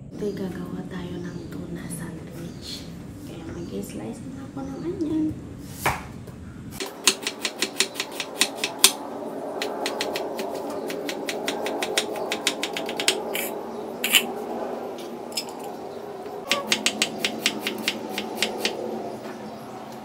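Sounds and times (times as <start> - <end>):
steady background hum: 0.0 - 20.0
knife tapping cutting board: 16.5 - 18.8.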